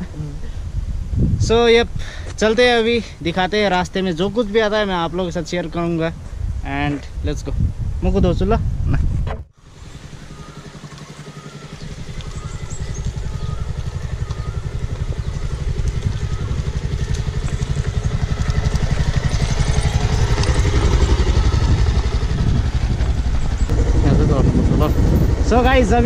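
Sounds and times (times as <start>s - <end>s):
motorcycle engine running: 9.0s - 26.0s
tyres on gravel: 10.0s - 21.9s.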